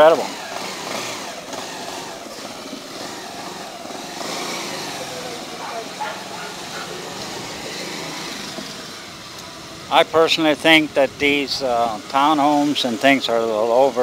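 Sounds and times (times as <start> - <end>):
motorcycle engine running: 0.0 - 14.0
rushing ride noise: 0.0 - 14.0.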